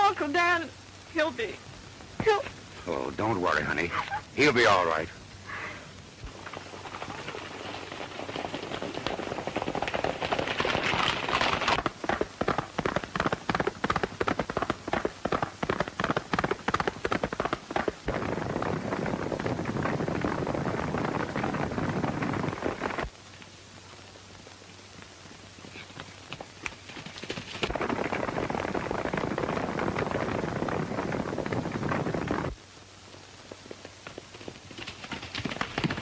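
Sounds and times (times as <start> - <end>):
horses galloping: 2.2 - 32.6, 33.3 - 36.0
sharp cracks: 6.0 - 23.6, 26.1 - 32.6.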